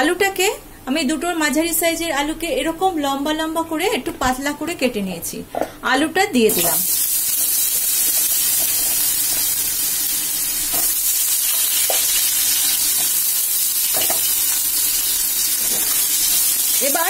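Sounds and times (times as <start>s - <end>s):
potato slices sizzling in oil: 6.5s - 17.0s.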